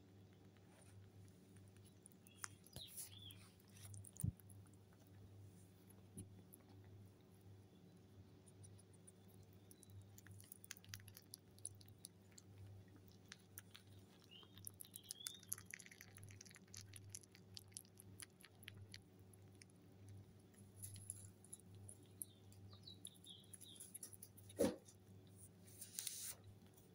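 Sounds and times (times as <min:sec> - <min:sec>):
rabbits chewing: 0:00.0 - 0:26.9
bird chirping: 0:01.8 - 0:04.3, 0:07.6 - 0:10.6, 0:13.6 - 0:17.2, 0:21.9 - 0:24.3.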